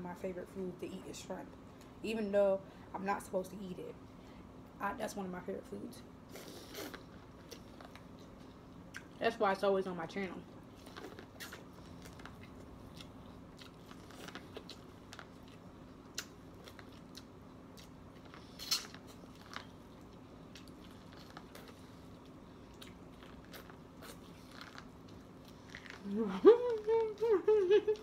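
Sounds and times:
faint steady hum: 0:00.0 - 0:28.0
person biting and chewing corn: 0:10.8 - 0:26.1.

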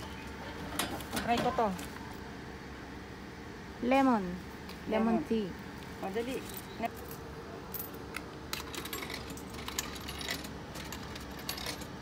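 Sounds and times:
coins clinking into coin slot: 0:07.8 - 0:12.0.

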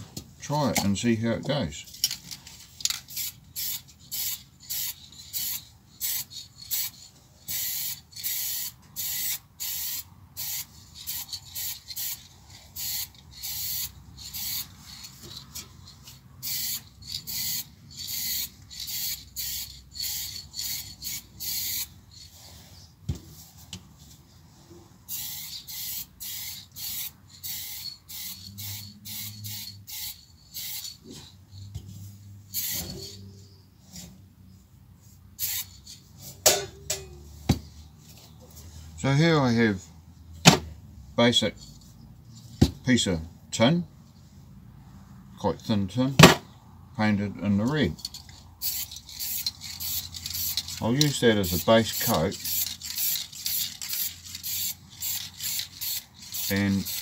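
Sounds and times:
spray can hissing in bursts: 0:03.1 - 0:12.2, 0:12.8 - 0:15.0, 0:16.4 - 0:22.5, 0:25.1 - 0:30.8, 0:32.5 - 0:33.2, 0:35.4 - 0:35.9, 0:48.6 - 0:57.0.

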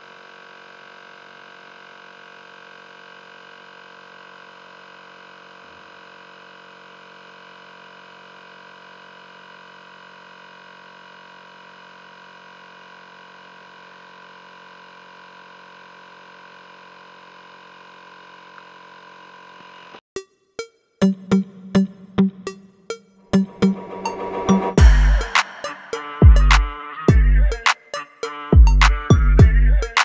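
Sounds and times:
tyre inflator pump humming: 0:00.1 - 0:20.0.

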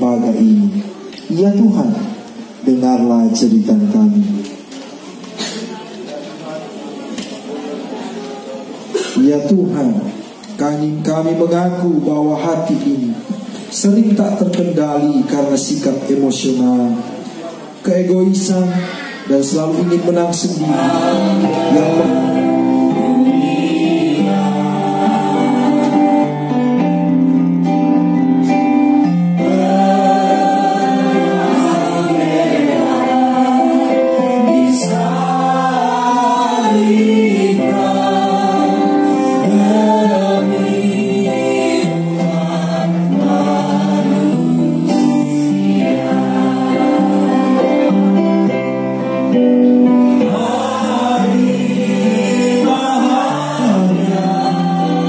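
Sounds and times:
choir singing gospel song: 0:19.4 - 0:27.6, 0:28.9 - 0:55.0.

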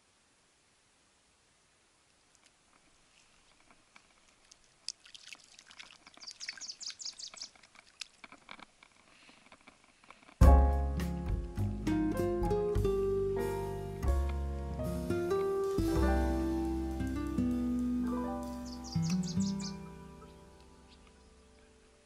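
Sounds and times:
fish splashing in shallow water: 0:03.0 - 0:09.2
background music: 0:10.4 - 0:22.0.

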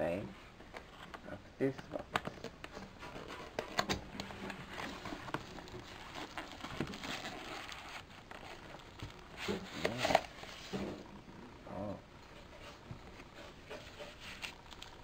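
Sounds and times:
cardboard and plastic bag rustling: 0:02.3 - 0:11.0.

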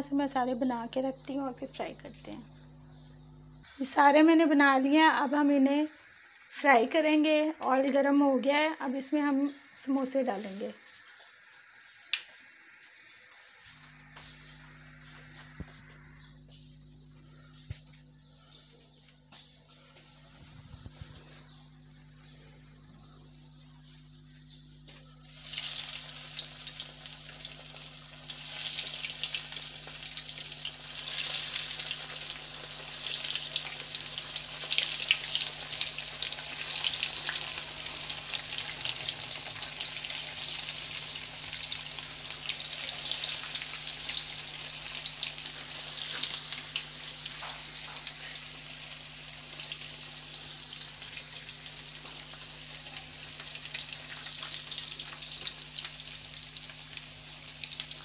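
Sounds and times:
food deep-frying in oil: 0:24.9 - 0:58.0.

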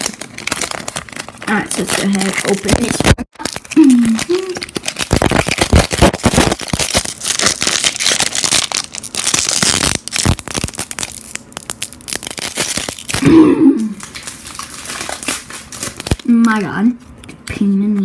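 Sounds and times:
card pack wrapper crinkling: 0:00.0 - 0:16.6.

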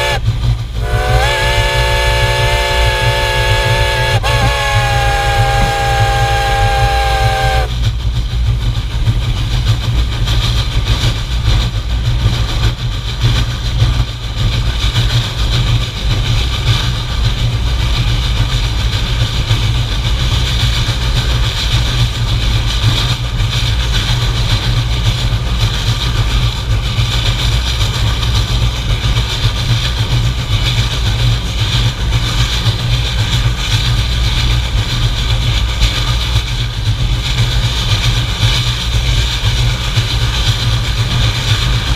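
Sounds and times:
steam whistle: 0:00.0 - 0:07.7
steam hissing: 0:00.0 - 0:41.9
steam locomotive rumbling: 0:00.0 - 0:41.9.

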